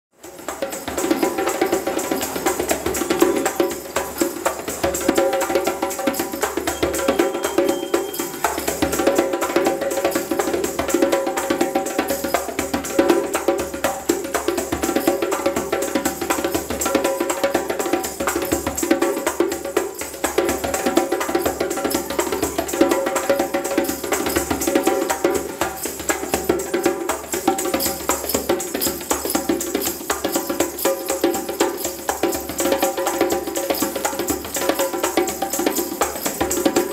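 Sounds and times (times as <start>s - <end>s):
djembe drumming: 0.2s - 36.9s
small bells shaking to a beat: 0.2s - 36.9s.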